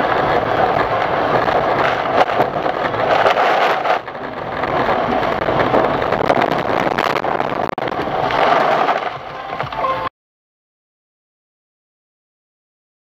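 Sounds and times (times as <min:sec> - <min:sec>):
road and tyre noise with slush: 0:00.0 - 0:10.1.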